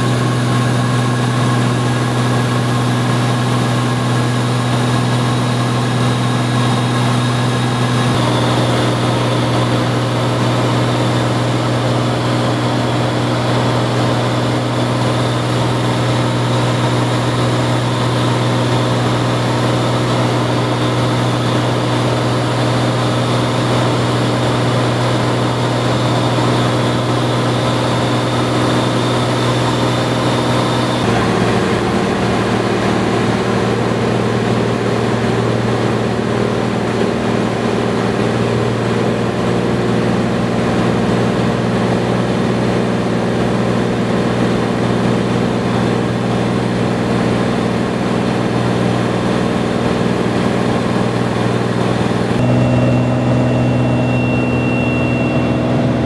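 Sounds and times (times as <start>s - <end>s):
low hum: 0.0s - 35.4s, 52.2s - 56.0s
propeller aircraft engine drone: 0.0s - 56.0s.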